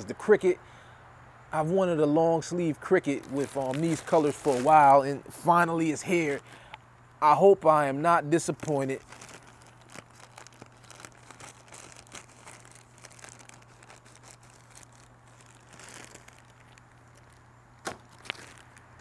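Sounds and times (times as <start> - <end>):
plastic bag crinkling: 2.8 - 6.7, 8.1 - 19.0.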